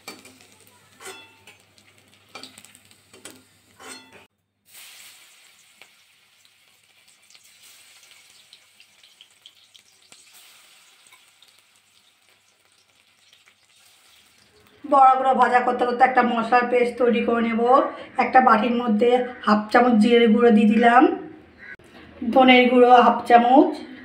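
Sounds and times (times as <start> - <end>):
fritters sizzling in oil: 0.0 - 15.9.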